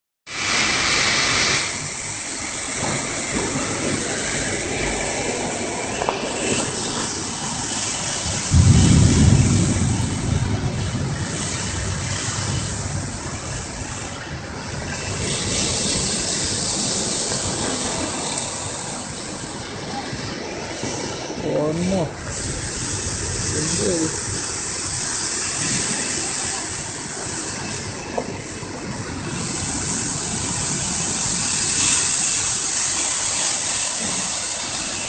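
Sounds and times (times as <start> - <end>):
storm wind rushing: 0.3 - 35.0
wind gust buffeting microphone: 0.4 - 35.0.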